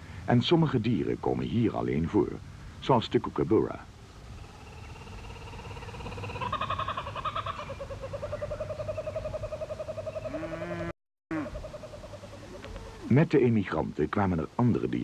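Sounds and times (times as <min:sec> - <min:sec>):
kookaburra calling: 0:04.4 - 0:13.1.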